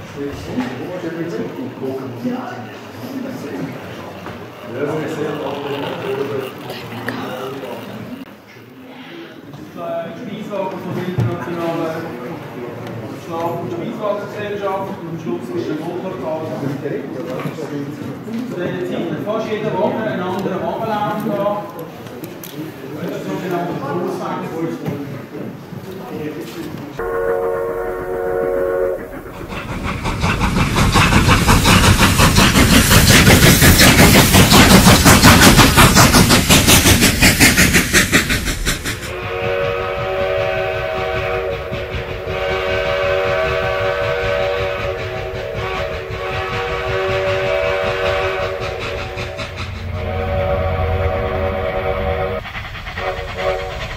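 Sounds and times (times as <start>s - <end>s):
steam train chuffing and clatter: 0.0s - 8.4s, 26.9s - 53.9s
steam whistle: 27.0s - 29.2s, 39.1s - 53.8s.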